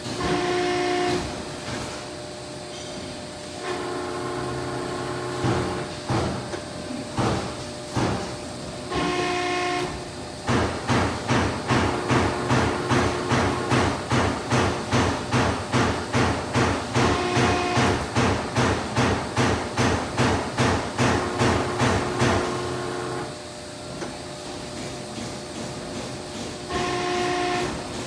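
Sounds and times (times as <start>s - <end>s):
press brake whine: 0.0s - 1.4s, 8.9s - 10.1s, 17.0s - 18.2s, 26.7s - 28.0s
steady machine knocking: 5.3s - 9.2s, 10.4s - 23.3s.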